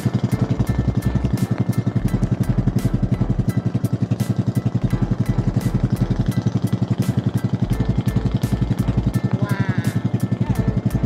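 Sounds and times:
boat engine chugging: 0.0 - 11.0.

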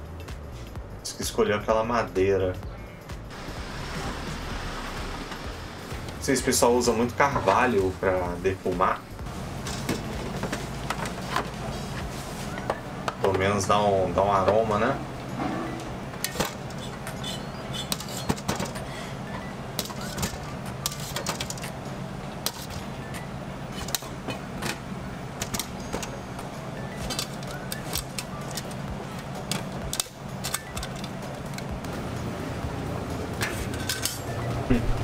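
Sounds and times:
background music: 0.0 - 17.7, 18.6 - 35.0
metal kitchenware clinking: 15.4 - 18.8, 33.4 - 34.4.

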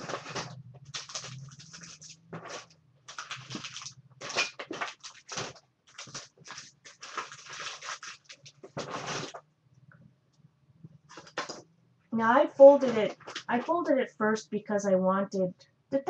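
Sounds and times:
paper rustling and crinkling: 0.0 - 9.4, 11.1 - 11.6, 12.7 - 13.8.

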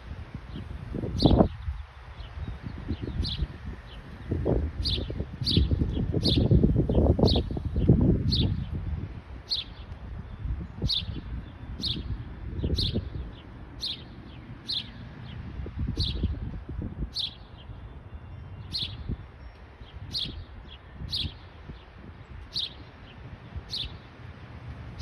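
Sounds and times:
songbird chirping: 9.5 - 16.4, 17.1 - 24.2.

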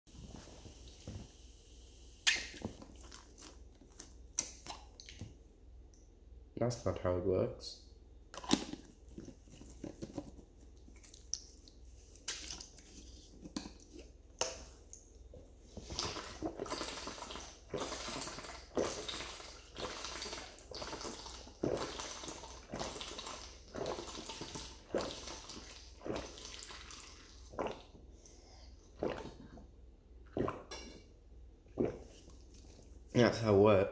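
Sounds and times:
gulping water: 15.7 - 33.6.

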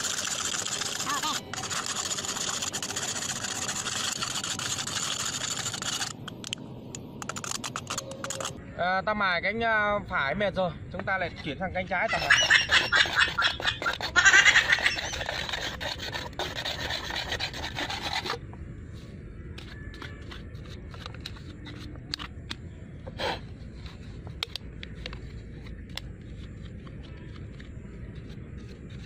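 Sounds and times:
metal can scraping on stone: 12.1 - 18.4.

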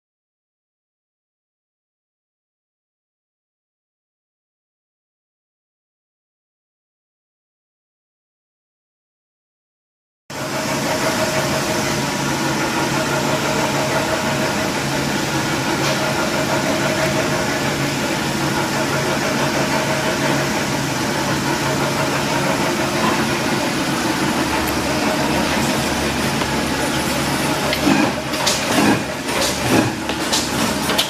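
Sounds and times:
machine hum: 10.3 - 31.0.

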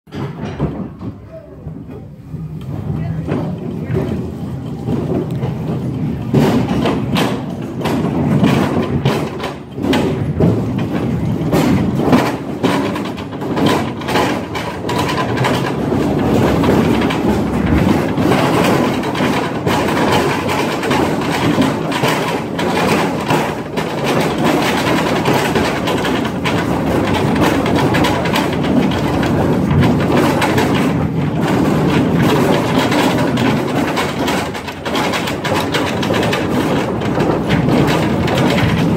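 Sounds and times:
train cars rumbling over rails: 0.1 - 38.9
wheels clacking and knocking: 0.1 - 38.9.

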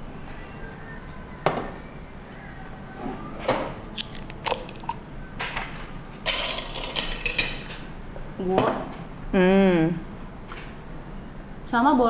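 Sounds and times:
cutlery and dishes clinking: 3.9 - 7.8.

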